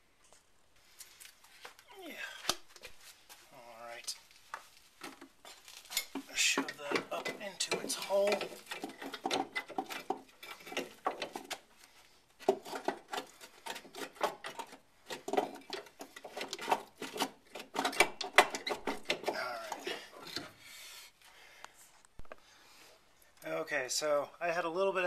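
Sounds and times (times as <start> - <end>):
metal clinking and scraping: 5.0 - 11.7.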